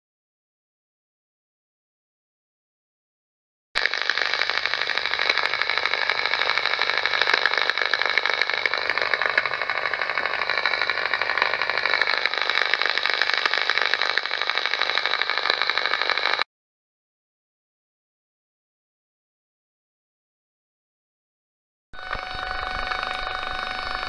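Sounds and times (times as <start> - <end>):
rapid rattling radio buzz: 3.8 - 16.5, 22.0 - 24.0
steady whistling tones: 22.0 - 24.0.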